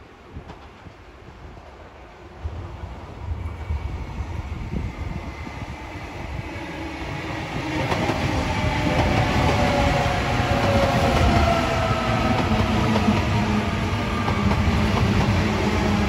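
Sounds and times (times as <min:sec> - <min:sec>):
train wheel and rail noise: 0:00.0 - 0:16.0.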